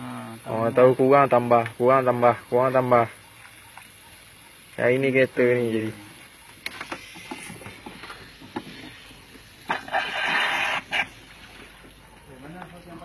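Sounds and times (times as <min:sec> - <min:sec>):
water hissing through hose: 0:06.6 - 0:11.9.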